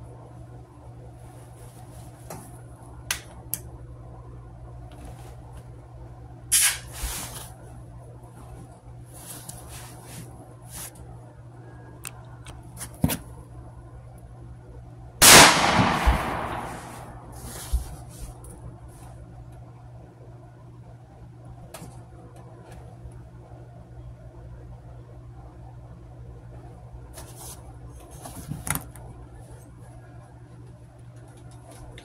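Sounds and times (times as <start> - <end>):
loud gunshot with echo: 15.2 - 17.4.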